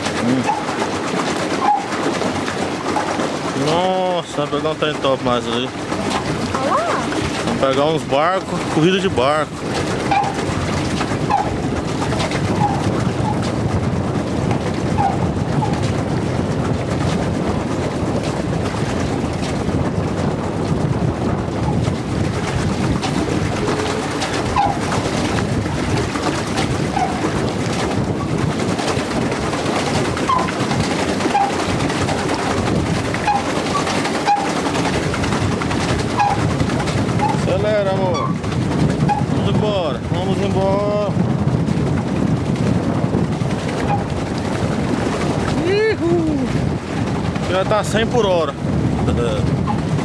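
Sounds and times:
boat moving on water: 0.0 - 50.0.

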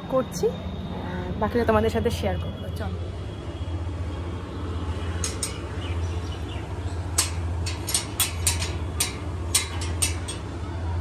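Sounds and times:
low steady hum: 0.0 - 11.0
metal bolt clicking and clanking: 5.2 - 5.8, 7.1 - 10.5.

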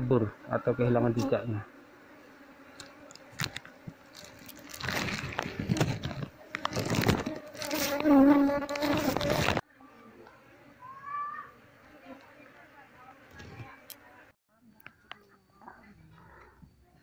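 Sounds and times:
bees buzzing: 0.0 - 14.3
loud rustling and handling: 3.0 - 9.6.

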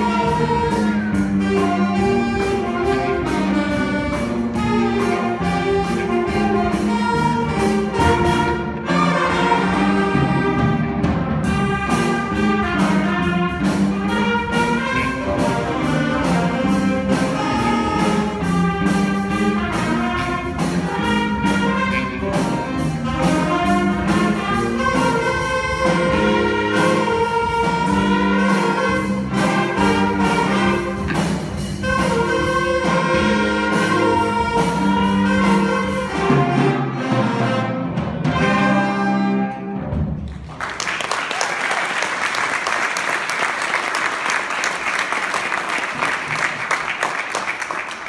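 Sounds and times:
trumpet solo with accompaniment: 0.0 - 40.0
applause: 40.2 - 48.0.

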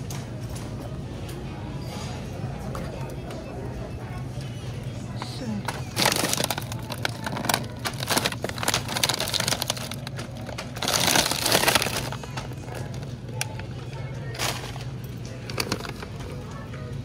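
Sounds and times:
plastic bags crinkling: 5.6 - 16.5.

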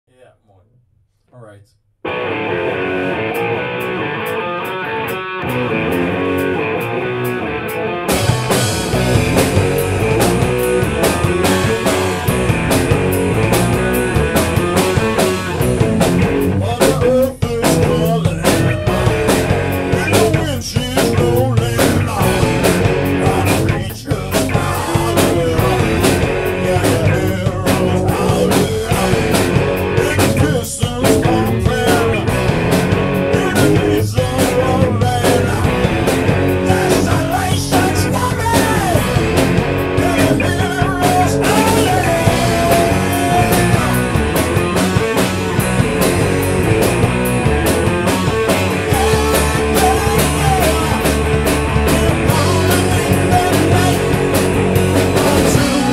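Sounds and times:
electric guitar: 2.0 - 55.9
rock band playing: 2.0 - 55.9.

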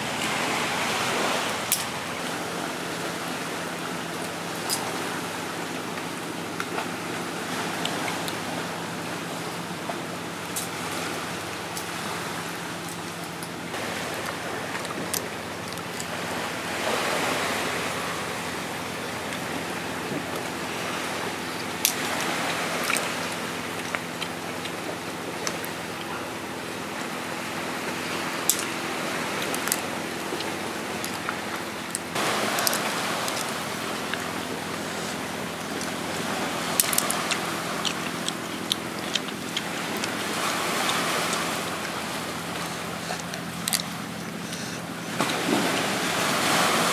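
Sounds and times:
surf on rocky shore: 0.0 - 46.9
sharp clicks and crackles: 28.4 - 28.7, 36.8 - 40.2.

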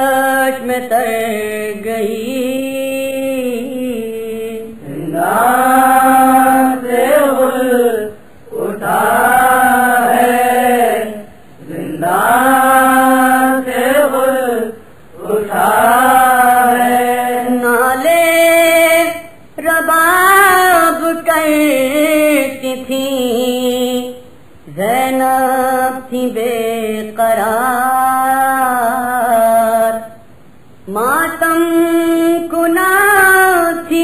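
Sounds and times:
man singing a mournful lament: 0.0 - 10.0, 13.3 - 30.2.

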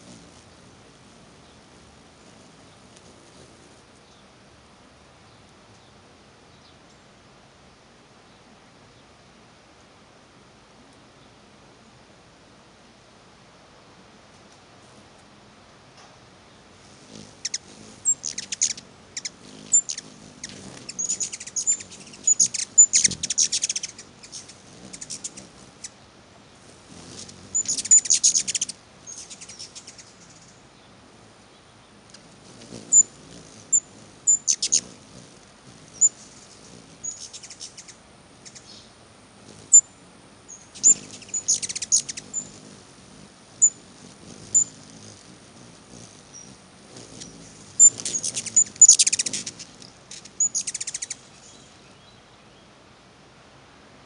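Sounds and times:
hummingbirds chattering: 0.0 - 4.4, 16.3 - 52.7.

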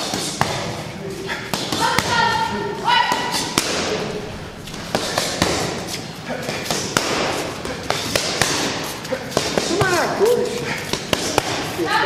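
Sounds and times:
boxing gloves smacking mitts: 0.0 - 0.8, 3.1 - 4.0, 4.7 - 11.8
noisy background: 0.0 - 12.0.

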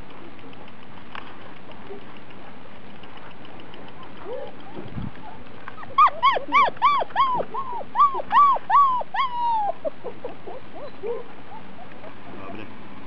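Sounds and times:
puppy yelping: 3.8 - 12.7
puppy whimpering: 4.0 - 12.7.

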